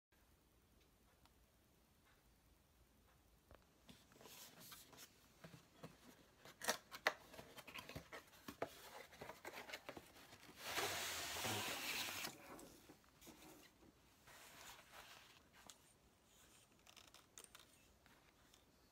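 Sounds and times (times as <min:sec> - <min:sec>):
bag sliding out of box: 0:10.5 - 0:12.4.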